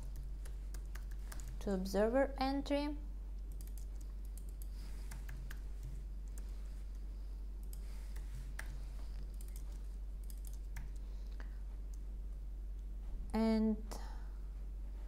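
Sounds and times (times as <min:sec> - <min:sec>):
keyboard typing: 0:00.0 - 0:01.7, 0:03.5 - 0:07.0, 0:07.6 - 0:11.1
steady low hum: 0:00.0 - 0:15.0.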